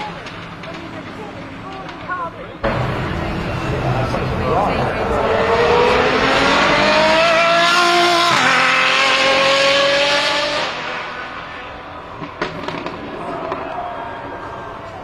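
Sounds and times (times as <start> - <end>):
car accelerating hard past: 4.0 - 13.8.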